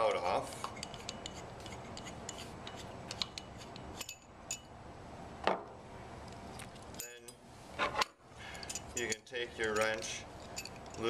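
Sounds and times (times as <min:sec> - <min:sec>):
metal valve clicks and clinks: 0:02.6 - 0:04.7, 0:06.9 - 0:07.4, 0:08.5 - 0:11.0.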